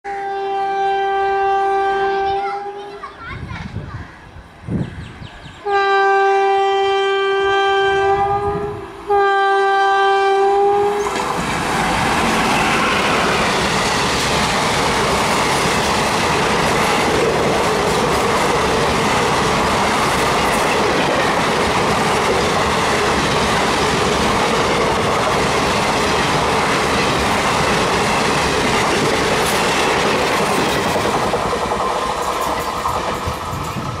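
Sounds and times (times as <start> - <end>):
locomotive horn blasts: 0.0 - 2.8, 5.6 - 11.1
train wheels rushing on rail: 7.4 - 34.0
clickety-clack of coaches: 15.3 - 33.9.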